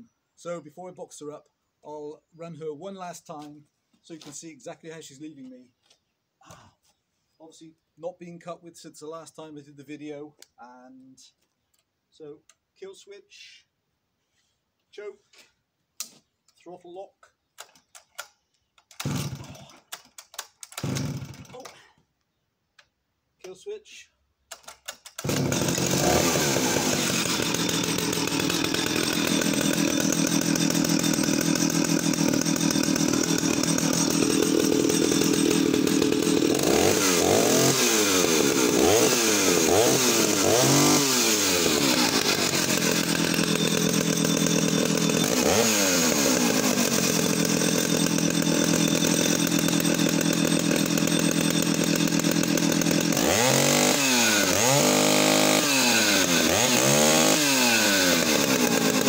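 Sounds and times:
chainsaw engine revving: 18.9 - 21.8, 24.5 - 59.0.

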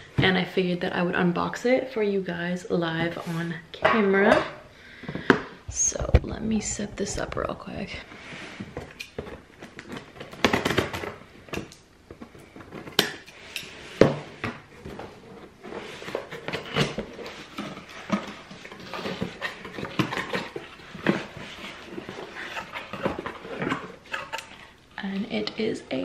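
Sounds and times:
contents rustling and crinkling: 5.0 - 25.4.

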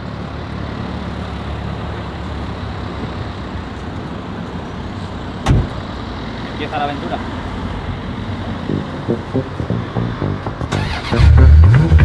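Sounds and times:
car engine running: 8.6 - 12.0.

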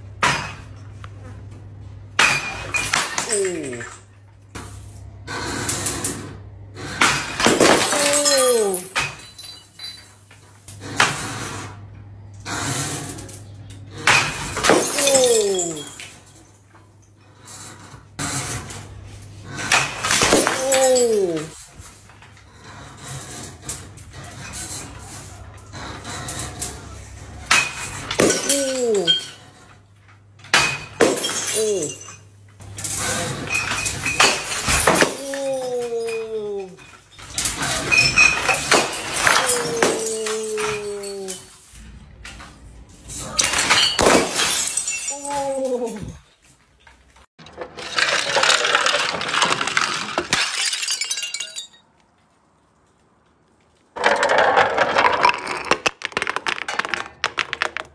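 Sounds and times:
glass bottles smashing: 2.2 - 4.1, 7.0 - 10.4, 14.0 - 16.7, 19.7 - 22.0, 27.5 - 29.5, 30.5 - 41.8, 43.2 - 46.4, 47.6 - 52.0, 54.0 - 57.9.

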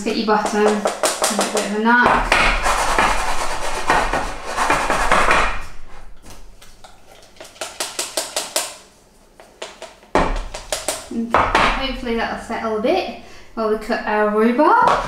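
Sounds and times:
cake tin knocking on wooden board: 0.3 - 3.2, 9.6 - 11.8.

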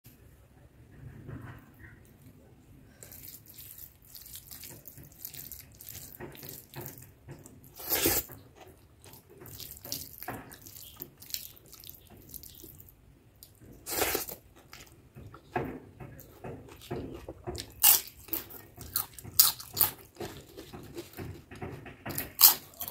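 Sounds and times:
wet chewing and mouth clicks: 3.0 - 15.6.

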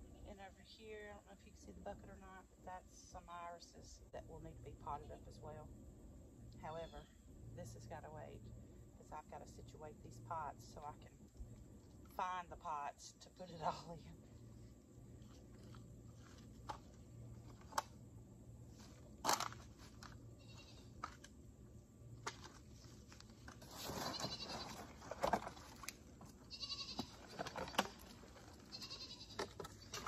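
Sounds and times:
goat bleating: 26.5 - 27.1, 28.7 - 29.4.

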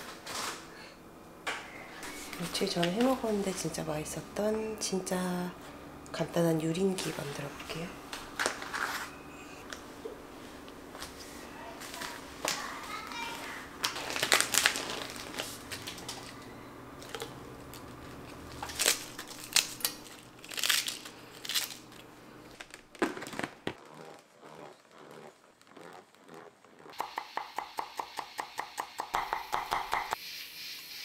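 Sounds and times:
packaging crinkling and tearing: 13.8 - 16.4, 17.0 - 26.8.

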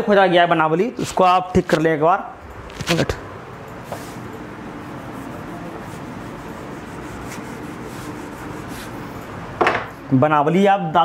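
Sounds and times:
eraser rubbing on whiteboard: 4.8 - 9.1.

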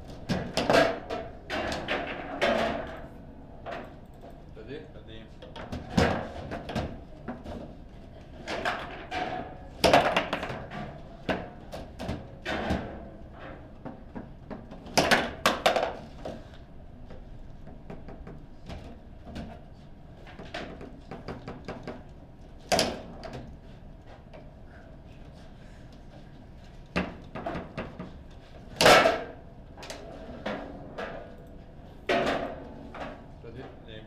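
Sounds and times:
table football clacks: 9.8 - 12.8, 20.4 - 23.5.

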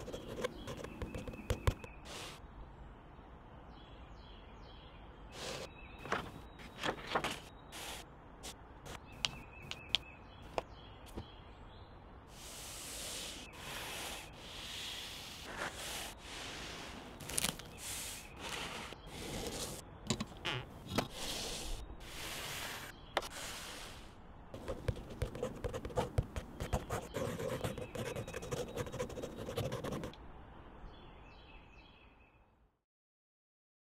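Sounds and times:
pen scratching on paper: 0.0 - 1.8, 24.6 - 30.1.

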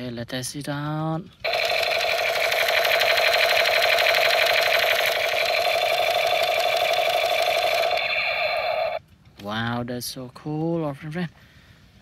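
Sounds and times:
toy machine gun electronic firing rattle: 1.4 - 9.0.

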